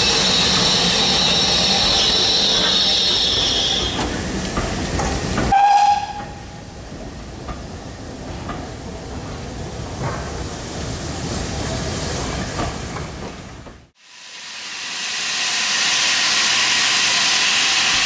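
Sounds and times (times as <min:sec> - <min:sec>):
steam train rumble and hiss: 0:00.0 - 0:13.3, 0:13.9 - 0:18.0
train whistle: 0:05.5 - 0:06.6.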